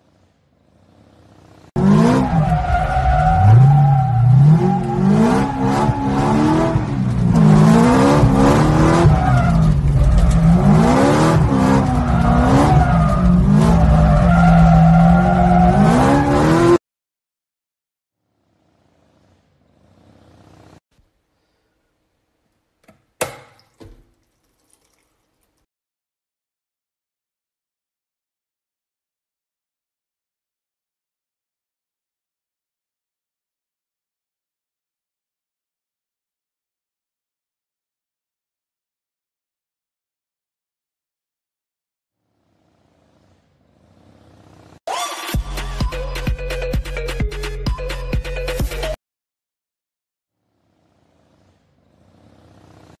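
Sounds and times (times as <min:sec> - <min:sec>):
car engine revving: 0:00.0 - 0:16.8, 0:18.4 - 0:20.8, 0:42.4 - 0:44.8, 0:50.6 - 0:53.0.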